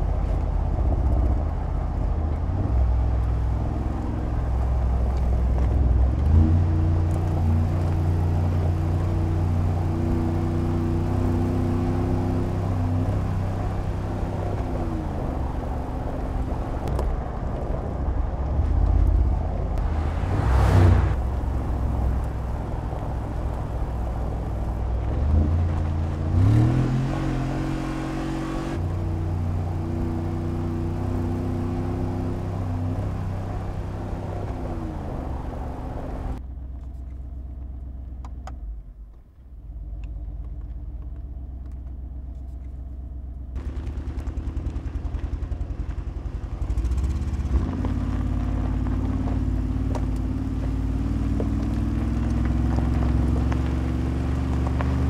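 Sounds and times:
engine pulling hard: 0.0s - 36.4s, 43.5s - 55.0s
whooshing rush: 17.3s - 24.0s.

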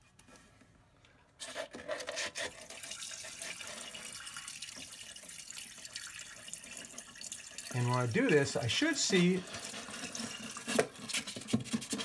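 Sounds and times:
liquid splashing and trickling: 2.6s - 11.2s.

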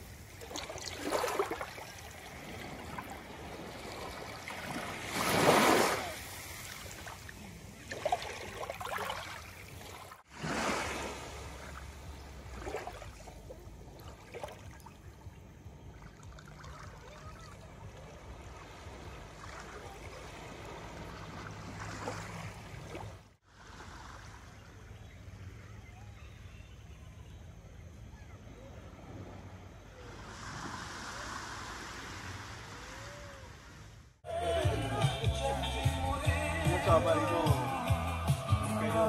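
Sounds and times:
small waves washing on sand: 0.0s - 15.0s, 16.0s - 24.9s, 29.0s - 33.9s.

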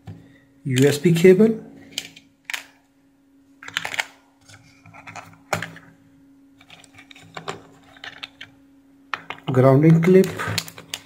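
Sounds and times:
hands handling cable in plastic tray: 3.6s - 5.9s, 6.6s - 8.6s.

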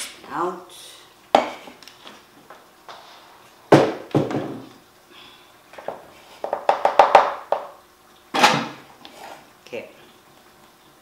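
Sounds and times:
heavy thunks on counter: 3.7s - 4.7s.

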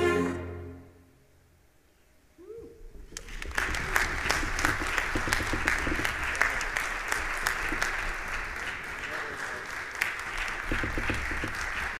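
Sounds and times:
audience applause: 3.2s - 11.9s.

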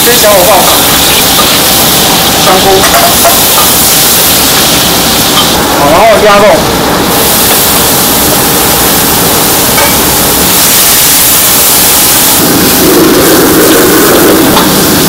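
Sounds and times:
meat sizzling in a wok: 0.0s - 5.6s, 9.0s - 12.8s.

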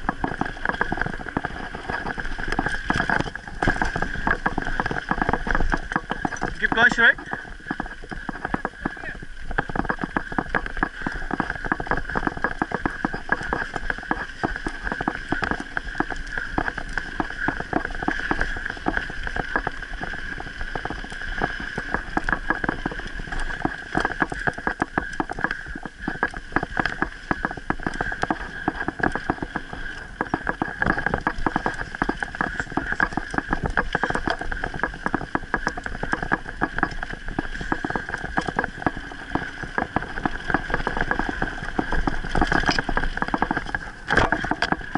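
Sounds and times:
bike rattling over rough trail: 0.0s - 44.9s.

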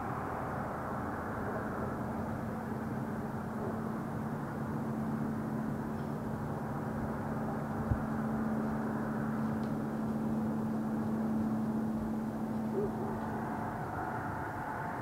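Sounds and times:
constant hum: 0.0s - 15.0s
distant engine drone: 0.0s - 15.0s.

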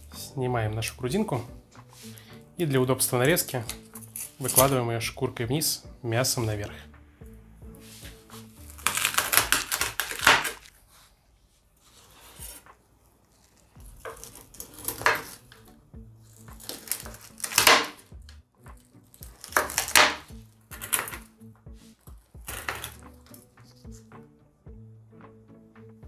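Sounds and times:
quiet background music: 0.0s - 26.0s
cleaver chopping crisp pork skin: 8.1s - 10.8s, 13.4s - 15.7s, 16.3s - 24.0s
cleaver striking cutting board: 8.7s - 10.6s, 13.8s - 15.5s, 16.5s - 18.1s, 19.2s - 21.3s, 22.4s - 23.1s.

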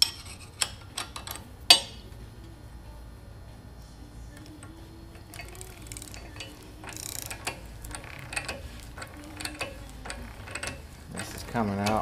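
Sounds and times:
ratchet wrench clicking: 5.2s - 12.0s.

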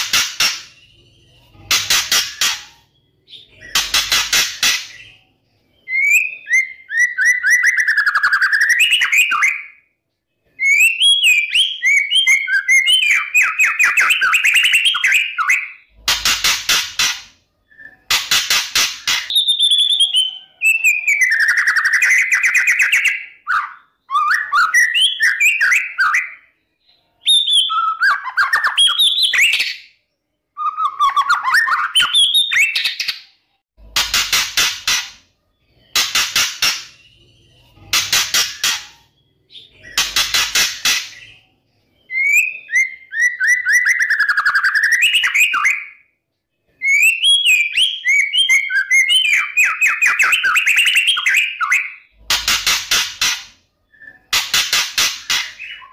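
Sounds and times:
bird singing whistled notes: 5.0s - 9.9s, 10.6s - 15.9s, 19.3s - 33.0s, 41.2s - 46.1s, 46.8s - 52.2s.

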